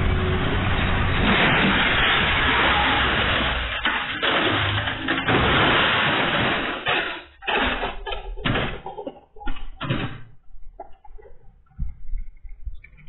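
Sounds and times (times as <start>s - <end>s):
metal crash and clatter: 0.0s - 10.3s
bangs: 0.0s - 10.4s.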